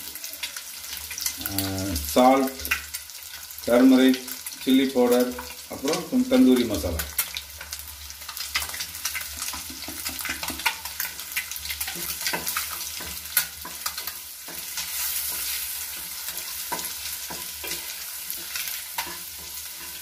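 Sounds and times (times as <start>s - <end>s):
onions sizzling in oil: 0.0s - 20.0s
spatula scraping pan: 9.4s - 20.0s.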